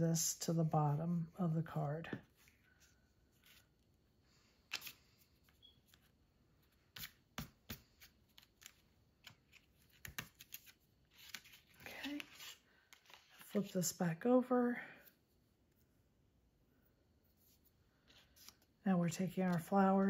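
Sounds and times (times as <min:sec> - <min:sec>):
cardstock being folded: 0:06.9 - 0:13.7.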